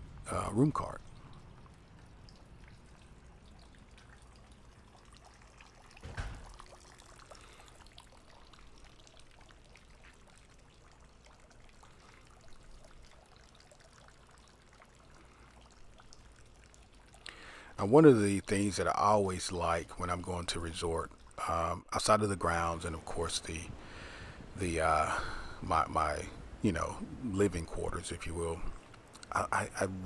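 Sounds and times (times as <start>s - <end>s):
fountain water trickling: 0.0s - 30.0s
thump: 6.0s - 6.6s.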